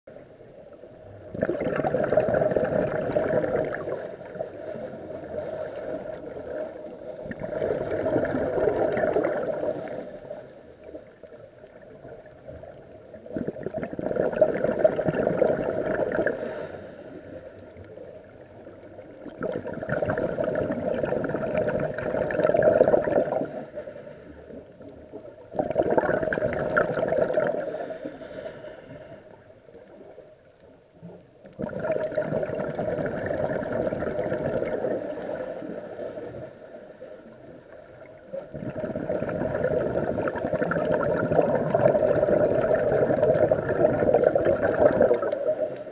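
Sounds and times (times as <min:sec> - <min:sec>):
underwater exhaled bubbles: 0:00.1 - 0:45.9.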